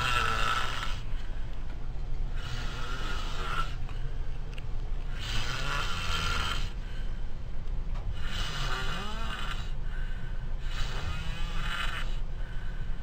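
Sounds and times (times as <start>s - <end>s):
person snoring heavily: 0.0s - 1.1s, 2.3s - 3.8s, 5.1s - 6.8s, 8.1s - 9.8s, 10.6s - 12.2s.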